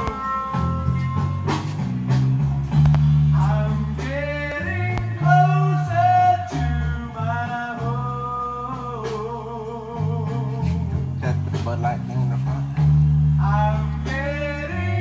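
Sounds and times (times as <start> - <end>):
guitar: 0.0 - 15.0
low bass line: 0.0 - 15.0
person singing: 3.3 - 12.8, 13.4 - 15.0.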